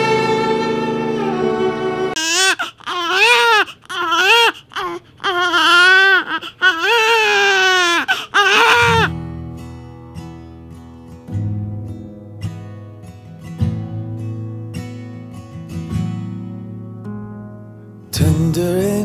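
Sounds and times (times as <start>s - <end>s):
acoustic guitar music: 0.0s - 2.3s, 8.5s - 19.0s
soft music: 0.0s - 2.5s, 8.8s - 19.0s
baby crying: 2.1s - 9.1s.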